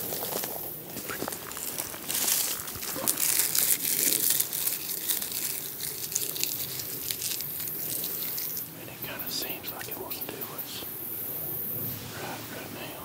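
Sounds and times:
gear scrapes and clicks: 0:00.0 - 0:08.7
jacket rustling and crinkling: 0:00.0 - 0:08.8.

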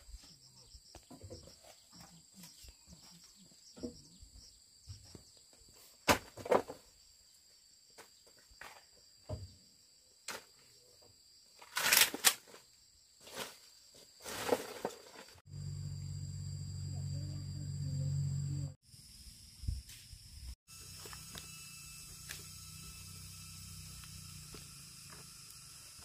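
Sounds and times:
sticks raked on dirt: 0:13.2 - 0:15.4
high insect drone: 0:15.5 - 0:26.0.

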